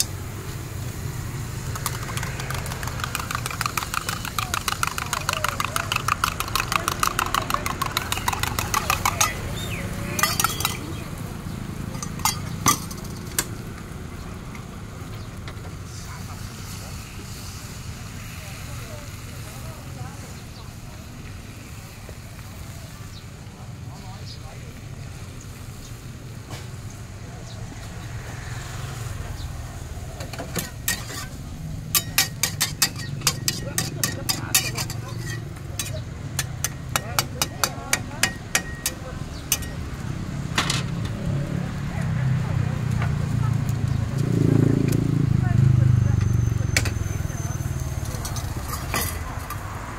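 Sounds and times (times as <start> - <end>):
gas burner roar: 0.0 - 20.5, 27.7 - 45.4
omelette frying: 0.5 - 10.9, 30.4 - 39.9
metal spoon clinking in steel cup: 1.8 - 11.0, 11.9 - 13.2, 30.6 - 39.8
metal spatula scraping a pan: 6.6 - 10.9, 30.4 - 38.9, 47.7 - 49.3.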